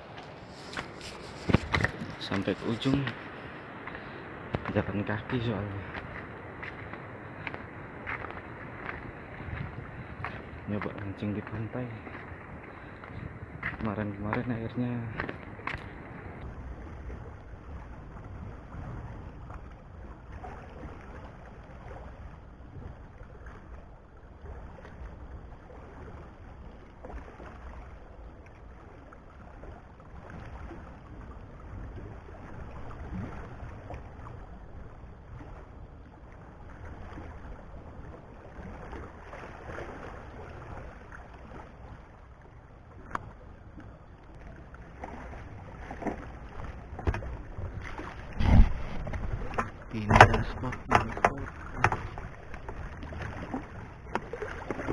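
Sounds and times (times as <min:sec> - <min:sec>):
wind buffeting microphone: 0:00.0 - 0:20.1, 0:46.8 - 0:54.6
waves lapping against rocks: 0:00.0 - 0:54.9.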